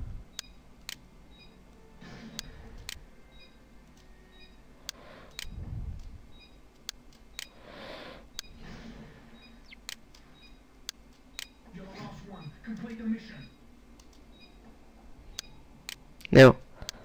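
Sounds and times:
computer mouse clicking: 0:00.3 - 0:01.0, 0:02.3 - 0:03.0, 0:03.8 - 0:04.2, 0:04.8 - 0:07.6, 0:09.7 - 0:11.6, 0:13.9 - 0:14.5.

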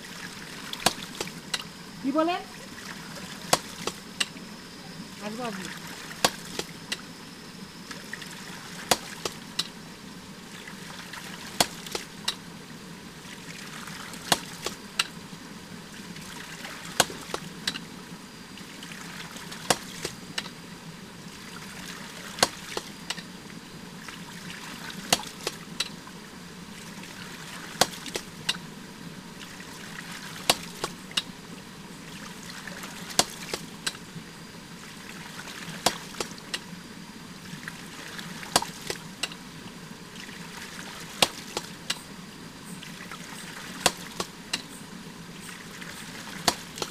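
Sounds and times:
water splashing: 0:00.0 - 0:07.0, 0:07.9 - 0:09.6, 0:10.4 - 0:12.4, 0:13.2 - 0:15.1, 0:15.9 - 0:17.8, 0:18.6 - 0:20.3, 0:21.3 - 0:23.3, 0:24.0 - 0:26.1, 0:26.7 - 0:34.0, 0:34.7 - 0:36.7, 0:37.4 - 0:39.5, 0:40.1 - 0:42.0, 0:42.8 - 0:44.4, 0:45.4 - 0:46.9.

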